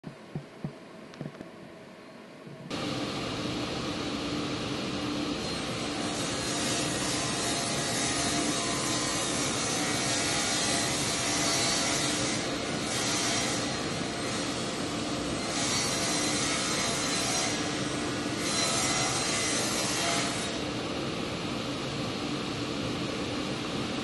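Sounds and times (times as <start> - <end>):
faint hum: 0.0 - 6.4
saw blade cutting wood: 15.4 - 20.6.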